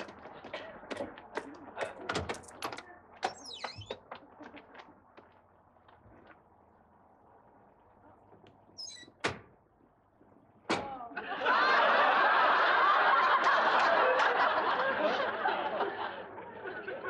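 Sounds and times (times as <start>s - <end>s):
audience laughing: 0.3s - 2.1s, 11.1s - 17.0s.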